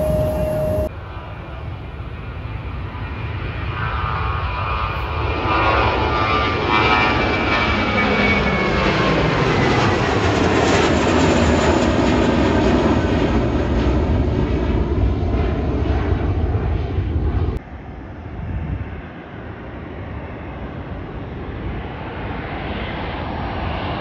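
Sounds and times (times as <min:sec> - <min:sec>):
distant jet noise: 0:00.0 - 0:18.3
jet engine roar: 0:00.0 - 0:24.0.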